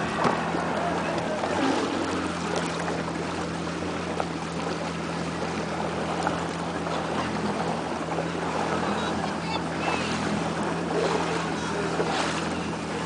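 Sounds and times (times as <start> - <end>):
boat engine humming: 0.0 - 13.0
water noise: 0.0 - 13.0
wind: 0.0 - 13.0.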